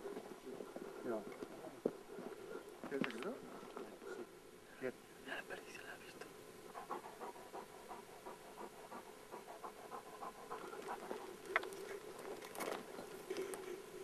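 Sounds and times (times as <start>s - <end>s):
dog panting hard: 6.7s - 12.4s.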